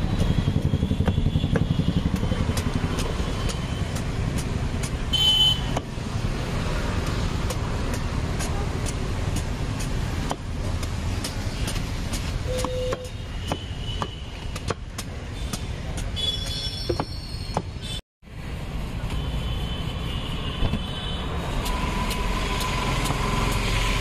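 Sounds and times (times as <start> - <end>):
road traffic rumble: 0.0 - 24.0
knife chopping fruit rind: 1.0 - 6.0, 6.9 - 17.8.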